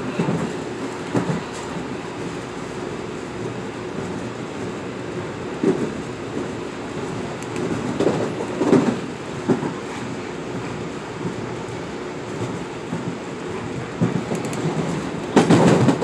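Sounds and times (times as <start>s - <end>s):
train interior rumble: 0.0s - 16.0s
wheels thudding on track: 0.1s - 1.9s, 7.3s - 11.4s, 12.4s - 16.0s.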